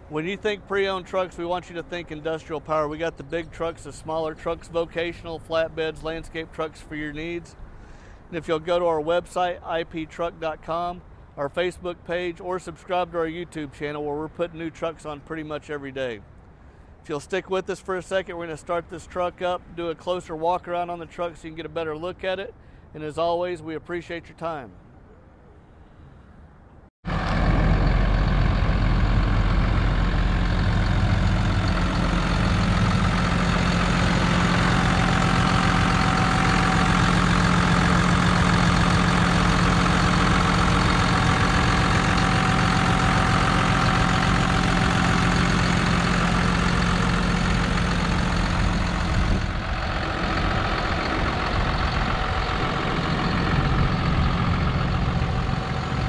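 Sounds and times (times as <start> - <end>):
diesel truck engine idling: 0.0 - 11.4, 27.1 - 56.0.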